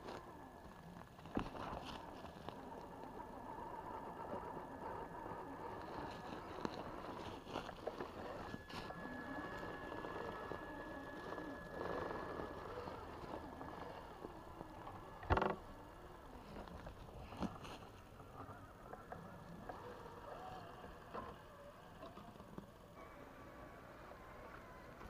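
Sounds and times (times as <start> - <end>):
tyres rustling in grass: 0.0 - 21.5
rc car motor whining: 0.0 - 25.0.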